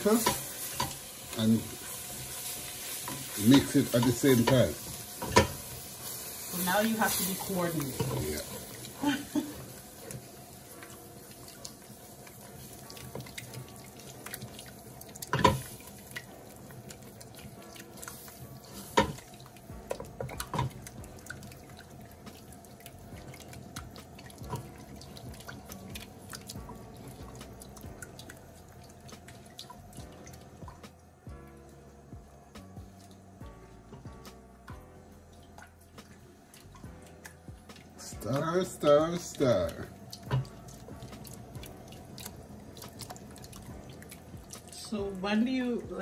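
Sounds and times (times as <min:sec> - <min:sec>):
wet dripping: 0:00.0 - 0:46.0
spoon knocking against pot: 0:05.2 - 0:05.6.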